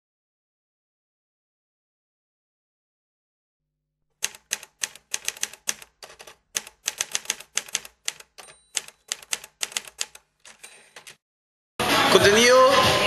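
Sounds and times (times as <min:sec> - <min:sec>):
typewriter keys clacking: 0:04.2 - 0:11.2.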